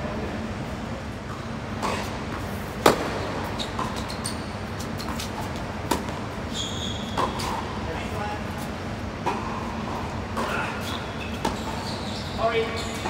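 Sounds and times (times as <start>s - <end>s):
tennis ball bounces: 1.8s - 4.1s, 4.9s - 6.2s
tennis balls struck by rackets: 1.8s - 4.1s, 4.9s - 6.3s
shoe squeaks: 3.5s - 5.5s, 6.4s - 7.6s, 10.4s - 13.0s.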